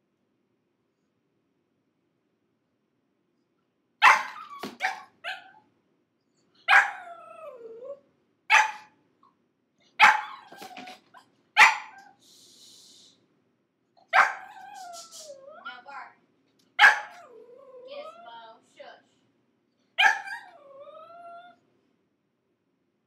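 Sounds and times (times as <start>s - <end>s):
puppy barking and yelping: 4.0s - 5.7s, 6.6s - 9.0s, 9.9s - 12.2s, 14.0s - 15.6s, 16.8s - 18.2s, 20.0s - 21.6s.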